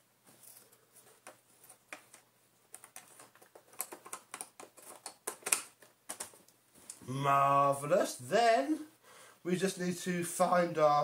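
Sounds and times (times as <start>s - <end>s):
clicks and scratches on plastic: 1.1s - 7.0s.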